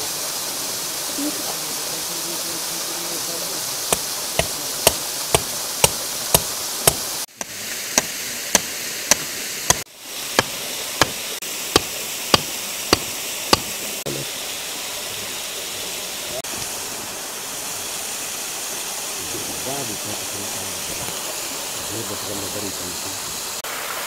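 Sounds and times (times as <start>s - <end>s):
waterfall rushing: 0.0s - 24.0s
stone hammering metal skewer: 3.9s - 9.8s, 10.4s - 11.2s, 11.8s - 13.7s.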